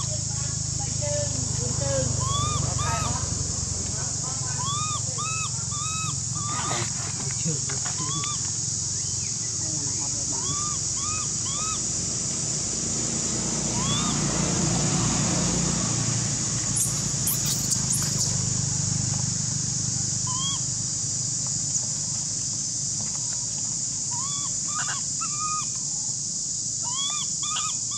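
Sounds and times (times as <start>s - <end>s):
high-pitched insect drone: 4.0s - 12.7s, 16.6s - 18.8s
chirping calls: 16.7s - 18.4s.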